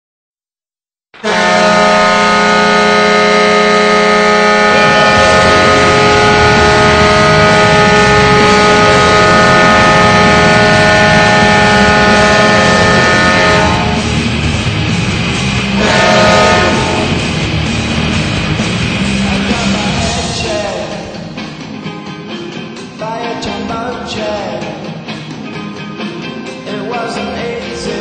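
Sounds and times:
multi-tone air horn blast: 0:01.2 - 0:14.3, 0:15.7 - 0:17.8.

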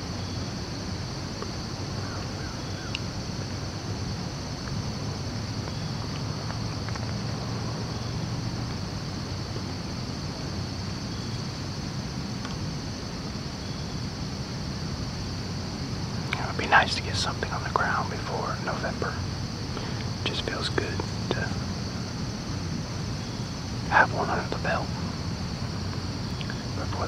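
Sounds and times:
high-pitched insect chorus: 0:00.0 - 0:27.0
faint ticks: 0:01.4 - 0:03.5, 0:16.2 - 0:17.9, 0:25.9 - 0:26.7.

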